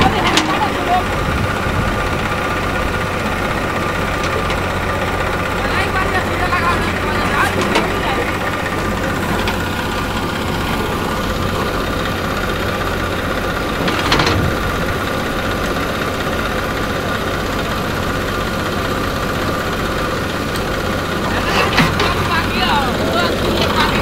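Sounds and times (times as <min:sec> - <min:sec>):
diesel engines running: 0:00.0 - 0:24.0.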